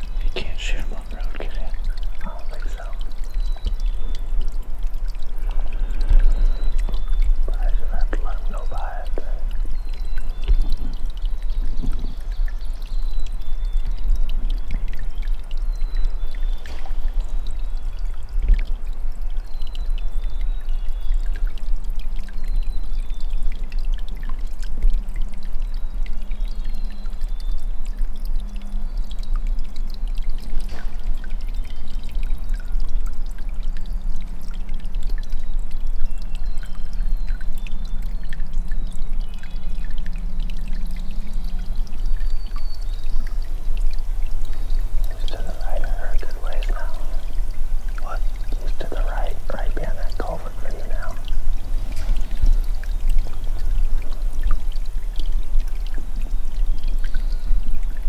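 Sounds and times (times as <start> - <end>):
faint bird chirps: 0.0 - 4.5, 5.6 - 18.4, 44.4 - 51.3.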